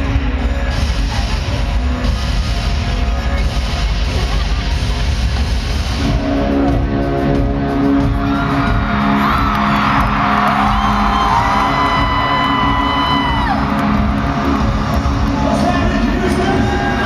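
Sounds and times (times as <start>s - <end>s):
crowd whooping and screaming: 7.9s - 17.0s.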